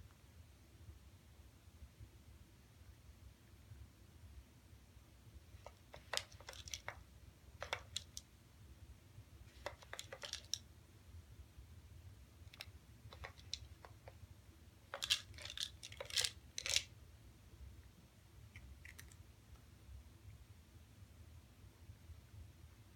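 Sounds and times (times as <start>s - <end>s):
cat treats rattling in plastic toy: 5.6s - 7.0s, 7.6s - 8.2s, 9.5s - 10.6s, 12.5s - 14.1s, 14.9s - 16.9s.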